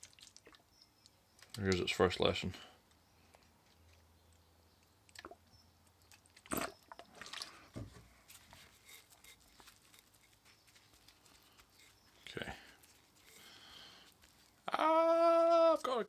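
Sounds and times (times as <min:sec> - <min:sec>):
wet paper towel crinkling: 0:08.2 - 0:14.6.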